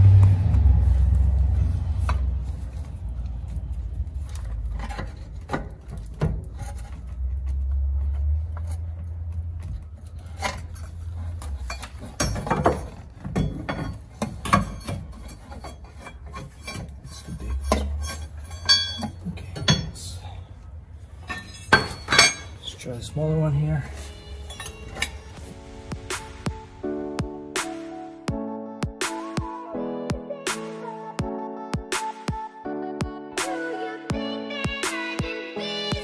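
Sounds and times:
pry bar scraping metal: 10.2 - 20.0.

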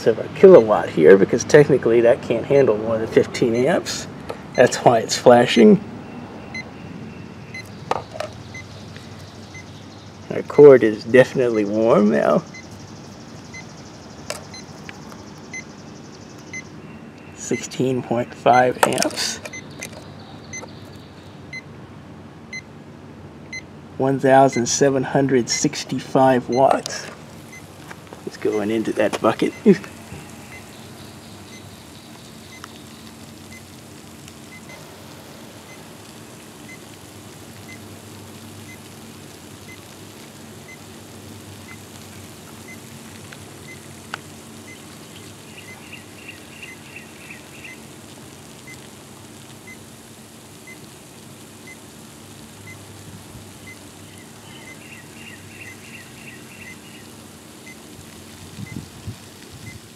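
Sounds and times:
steady low hum: 0.0 - 59.9
brine fizzing and bubbling: 28.2 - 59.9.

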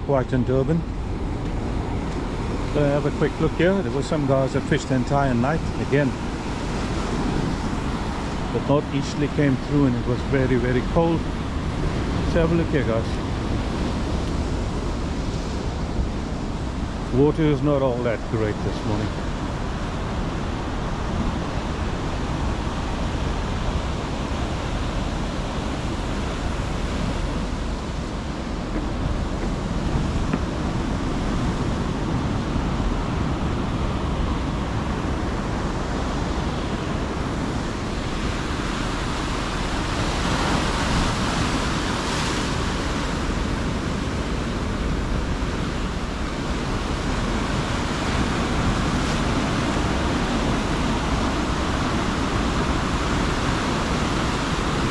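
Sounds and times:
surf breaking over rocks: 22.5 - 54.9.

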